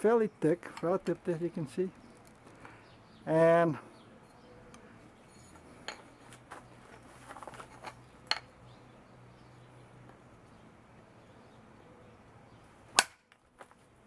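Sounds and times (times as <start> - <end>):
light metallic clinks and taps: 4.2 - 6.2.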